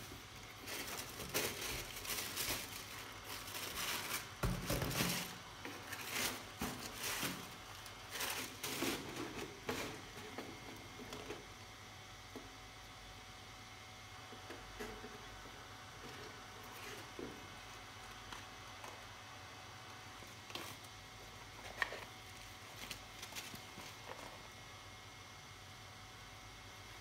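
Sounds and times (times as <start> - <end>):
tissue paper rustling and crinkling: 0.0 - 10.4, 21.6 - 24.5
cardboard box bump: 4.4 - 5.4.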